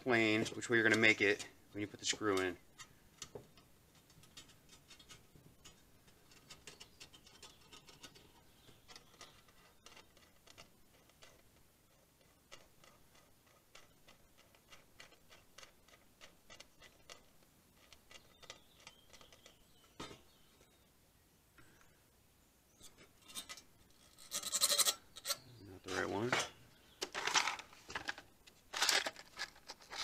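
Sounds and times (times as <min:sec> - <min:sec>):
faint clicks and taps on metal: 0:00.1 - 0:20.7.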